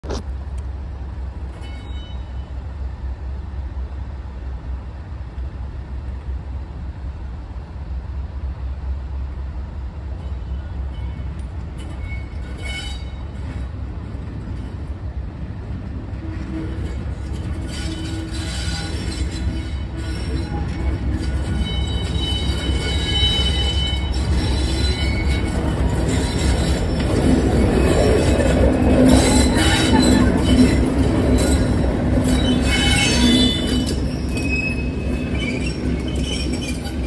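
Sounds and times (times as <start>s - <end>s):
diesel locomotive engine rumbling: 0.0s - 37.0s.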